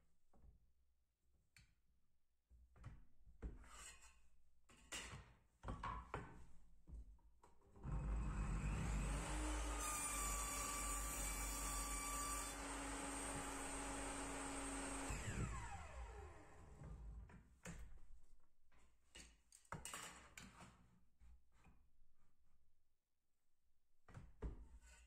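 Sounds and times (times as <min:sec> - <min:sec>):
table saw cutting wood: 0:07.9 - 0:16.9
saw motor whine spinning down: 0:14.6 - 0:16.8.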